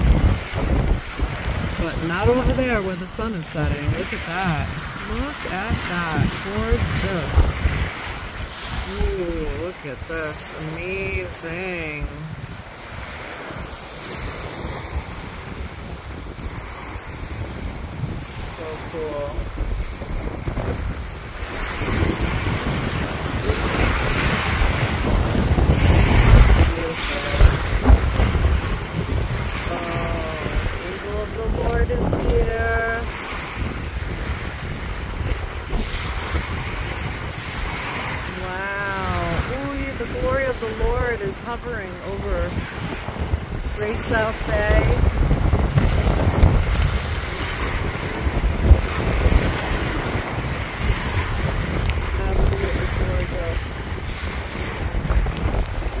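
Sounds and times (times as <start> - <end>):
small waves washing on shore: 0.0 - 56.0
wind buffeting microphone: 0.0 - 56.0.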